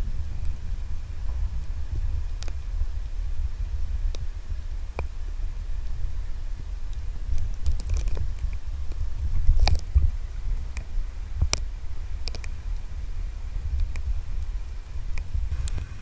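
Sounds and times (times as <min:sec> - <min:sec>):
underwater rumble of moving water: 0:00.0 - 0:16.0.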